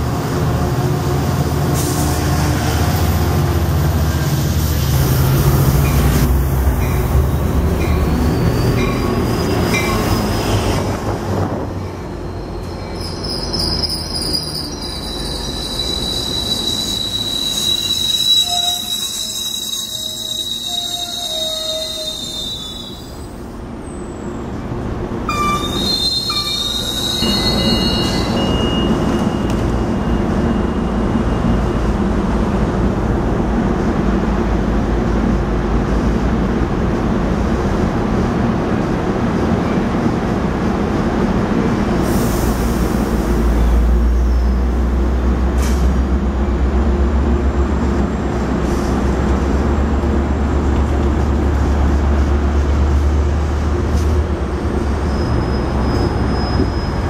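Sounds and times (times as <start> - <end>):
train wheels rumbling on rail: 0.0 - 57.0
high wheel squeal: 11.9 - 24.2, 25.3 - 31.8, 54.6 - 57.0.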